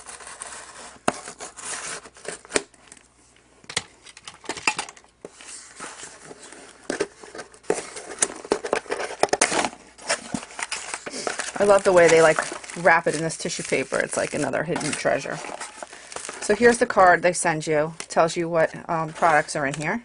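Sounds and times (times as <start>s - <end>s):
cardboard pulled and scraped open: 0.0s - 2.5s, 10.0s - 16.8s
papery rustling: 5.2s - 17.2s.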